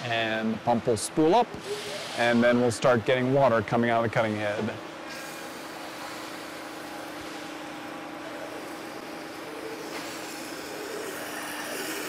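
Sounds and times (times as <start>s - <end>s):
high-pressure pump humming: 5.0s - 12.0s
water hissing through cutting head: 8.7s - 12.0s.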